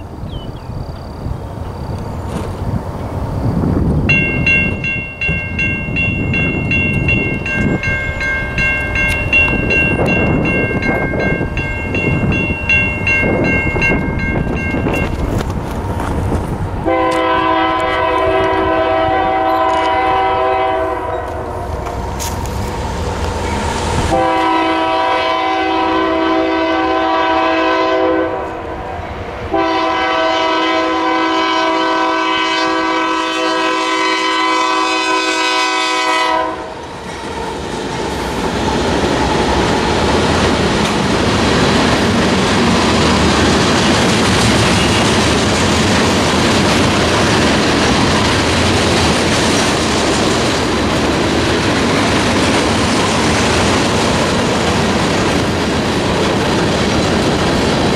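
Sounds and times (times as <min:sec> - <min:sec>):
train wheels clickety-clack: 0:04.1 - 0:20.3, 0:36.8 - 0:57.9
train air horn blasts: 0:16.8 - 0:22.4, 0:24.1 - 0:28.9, 0:29.5 - 0:36.8.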